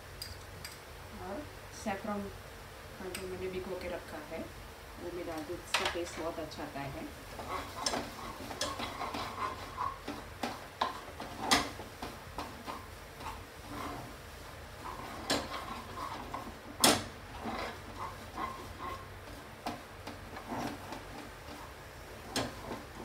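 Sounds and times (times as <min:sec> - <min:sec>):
spatula scraping a frying pan: 0:07.2 - 0:23.0.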